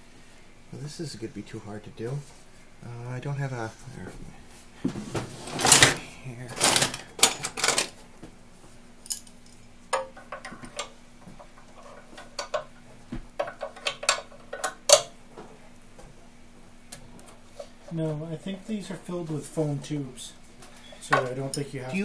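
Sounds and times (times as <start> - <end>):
faint steady hum: 0.0 - 22.0
metal tools clinking on metal frame: 6.6 - 8.0, 9.0 - 9.4, 21.0 - 22.0.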